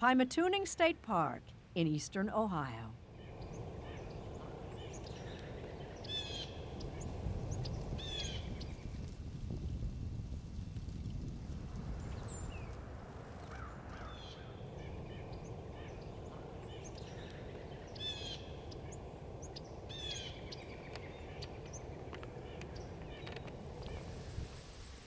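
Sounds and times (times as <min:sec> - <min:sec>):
low outdoor rumble: 0:00.0 - 0:25.0
wild birds chirping and whistling: 0:03.1 - 0:08.8, 0:13.5 - 0:25.0.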